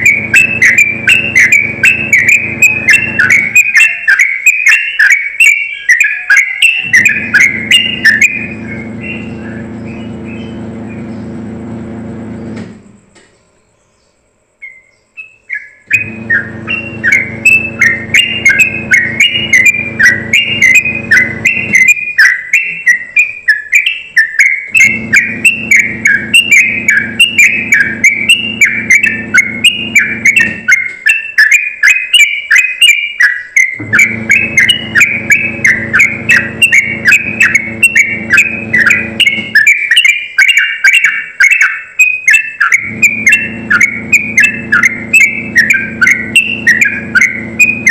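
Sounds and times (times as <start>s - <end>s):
bird singing high chirping notes: 0.0s - 11.6s, 13.7s - 47.9s
low steady hum: 6.8s - 13.7s.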